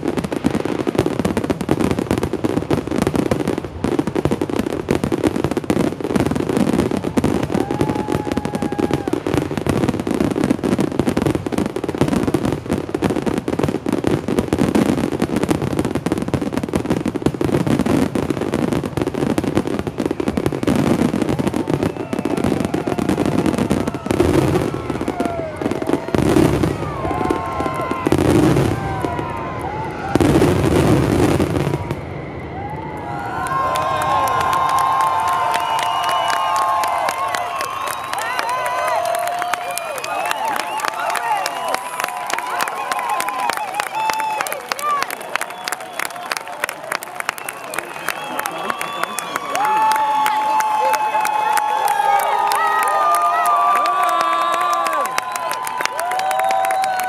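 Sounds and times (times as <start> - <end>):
fireworks bangs and crackling: 0.0 - 57.0
crowd shouting and cheering: 5.7 - 12.5, 18.4 - 57.0.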